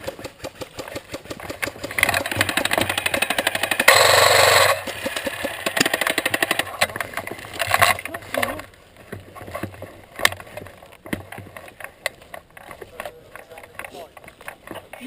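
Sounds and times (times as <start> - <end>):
airsoft guns firing bursts: 0.0 - 6.8.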